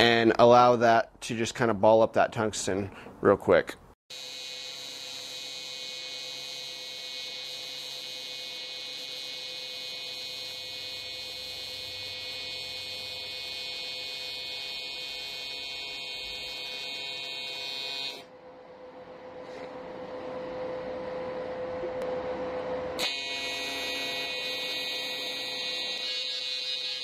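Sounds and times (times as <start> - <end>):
welding arc buzzing: 4.1 - 18.3, 23.0 - 27.0.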